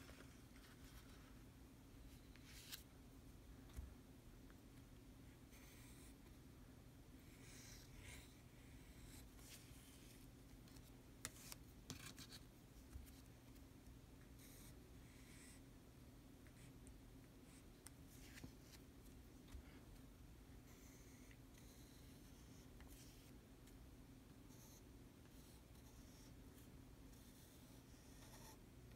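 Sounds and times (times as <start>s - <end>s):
pen nib scratching on paper: 27.1s - 28.6s.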